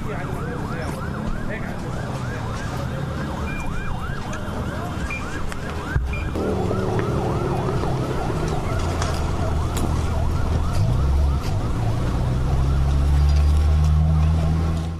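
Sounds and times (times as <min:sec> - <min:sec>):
siren yelping: 0:00.0 - 0:13.3
low rumble: 0:06.2 - 0:10.5.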